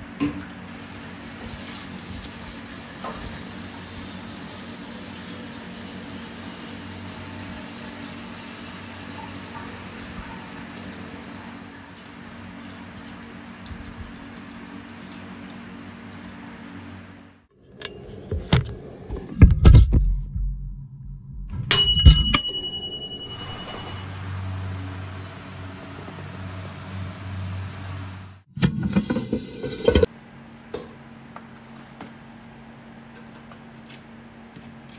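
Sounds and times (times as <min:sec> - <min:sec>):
steady low hum: 0:16.1 - 0:28.5
bright metallic ring: 0:21.7 - 0:24.6.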